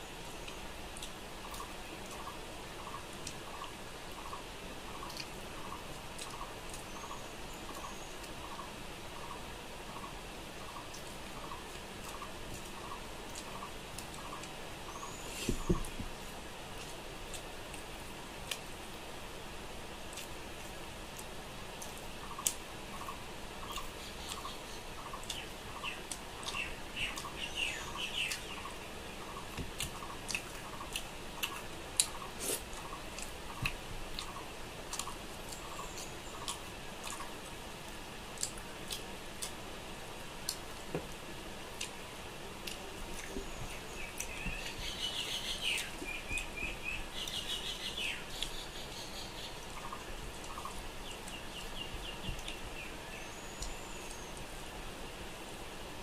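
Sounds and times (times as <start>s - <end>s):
birds chirping: 0.0s - 16.2s, 21.8s - 37.4s, 41.8s - 55.0s
chewing and mouth clicks: 29.8s - 37.3s, 38.4s - 39.6s.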